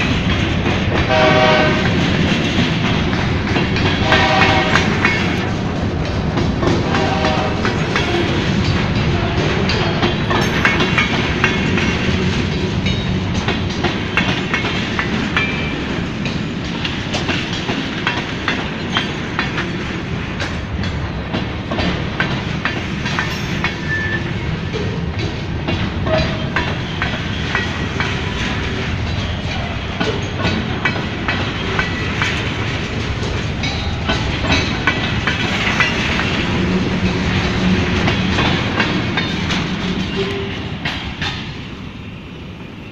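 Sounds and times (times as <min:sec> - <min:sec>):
clicks and knocks of train cars: 0:00.0 - 0:42.9
train wheels rumbling on rail: 0:00.0 - 0:42.9.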